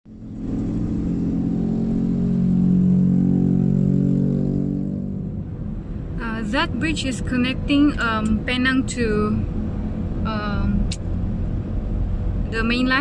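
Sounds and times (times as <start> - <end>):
car engine and road noise: 0.1 - 13.0.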